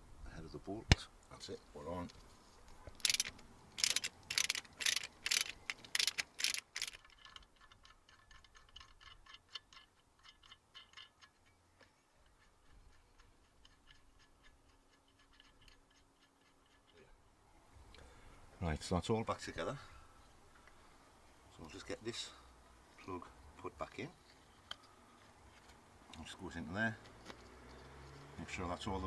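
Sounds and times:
socket ratchet clicking: 3.0s - 11.4s.

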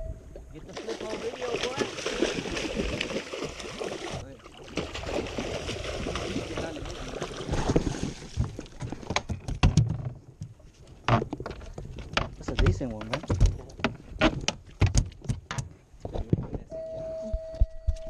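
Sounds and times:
fish splashing in water: 0.6s - 8.7s.

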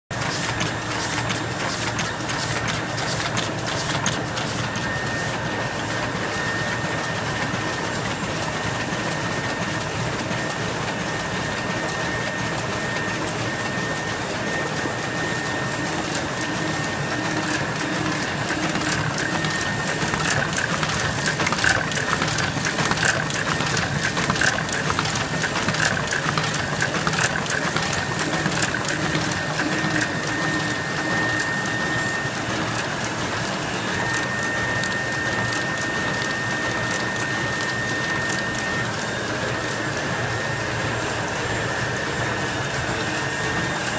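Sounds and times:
printing press clatter: 0.1s - 43.9s.

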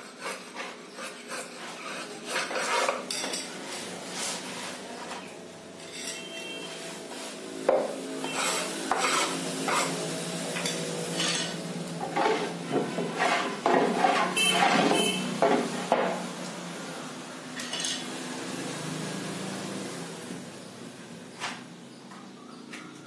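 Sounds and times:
hands brushing wood shavings: 3.6s - 5.3s, 6.5s - 7.6s.

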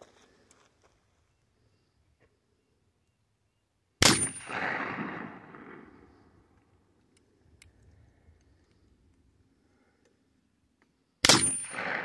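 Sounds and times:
revolver gunshot with echo: 4.0s - 5.9s, 11.2s - 12.0s.

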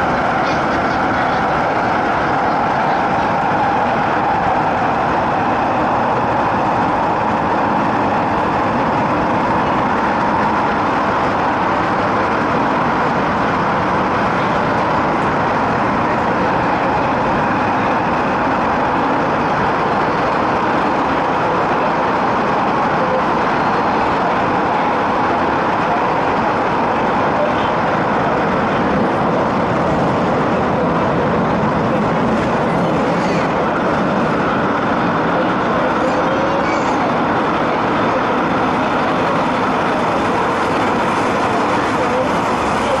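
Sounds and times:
electric train running noise: 0.0s - 43.0s.

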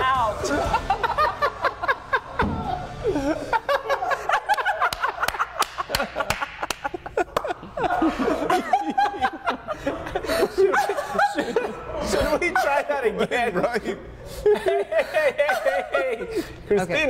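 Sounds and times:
people laughing hard: 0.4s - 16.7s.

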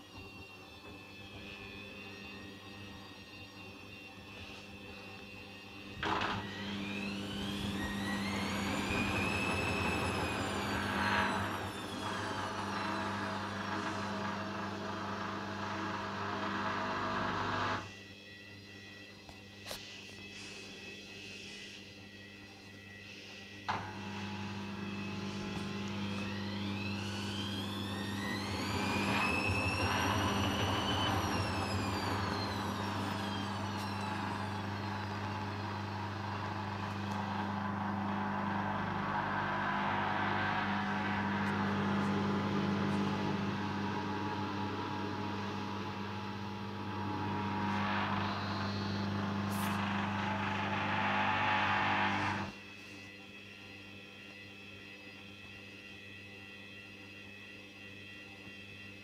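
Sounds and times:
washing machine motor whining: 0.0s - 18.0s, 22.7s - 52.9s
washing machine hum: 6.0s - 17.9s, 23.7s - 52.5s.

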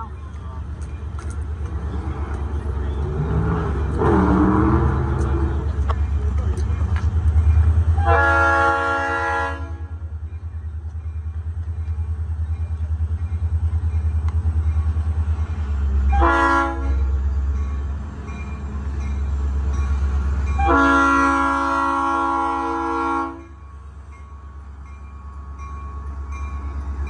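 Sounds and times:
low train rumble: 0.0s - 27.0s
locomotive air horn blasts: 8.0s - 10.0s, 16.1s - 17.0s, 20.6s - 23.5s.

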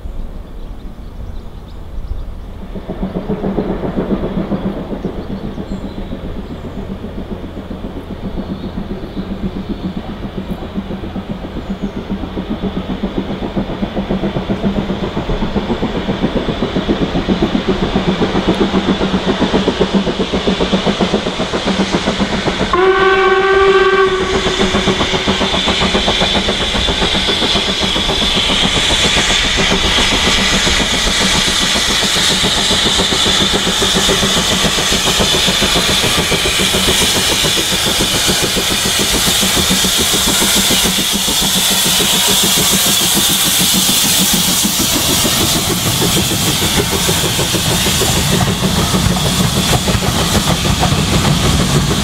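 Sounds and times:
steam locomotive exhaust beat: 0.0s - 52.0s
steam hissing: 1.2s - 52.0s
steam train whistle: 22.7s - 25.2s.

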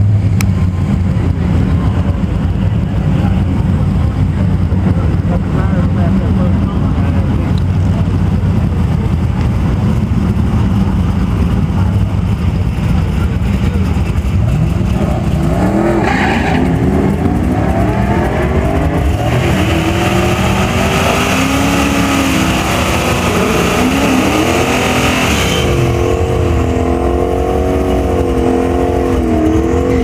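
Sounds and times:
car accelerating hard: 0.0s - 30.0s
supercharged engine accelerating: 13.0s - 30.0s.

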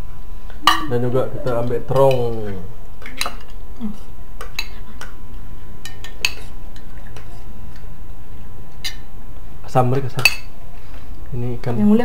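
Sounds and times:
steady low hum: 0.0s - 12.0s
spoons clinking on glass dish: 0.6s - 2.5s.

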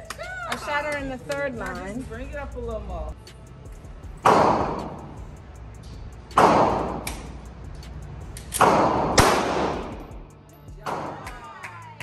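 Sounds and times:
pistol shots echoing indoors: 6.4s - 7.3s, 8.4s - 10.1s.

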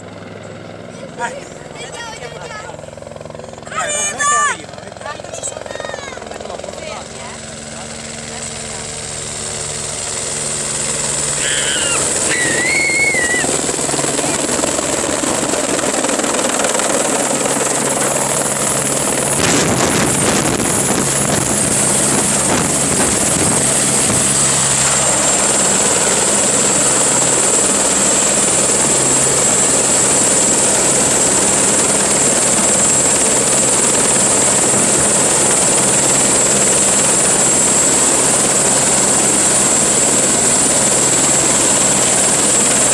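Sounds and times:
helicopter rotor chop: 0.0s - 42.9s
high turbine whine: 9.2s - 42.9s.

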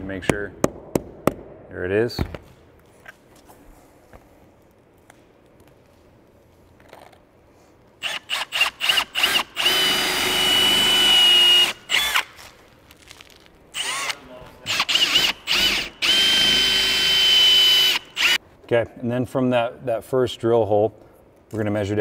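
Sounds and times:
cordless drill whining: 8.0s - 12.3s, 13.8s - 18.4s.

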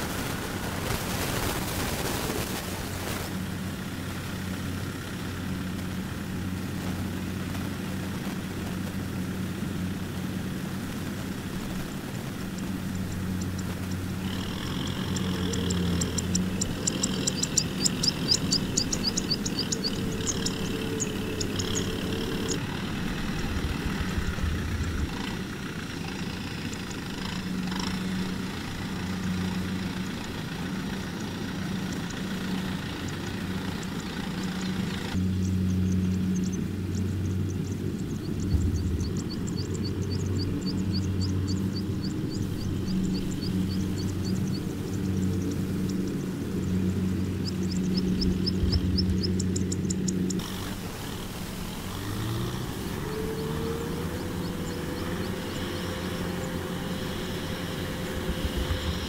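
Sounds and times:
tractor diesel engines running: 0.0s - 59.0s
rapid high-pitched ticking: 11.6s - 50.8s.

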